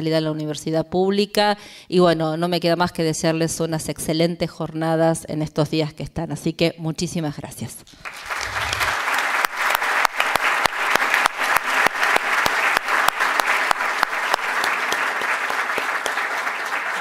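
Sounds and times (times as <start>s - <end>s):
audience applauding: 8.0s - 17.0s
single sharp claps: 8.1s - 17.0s.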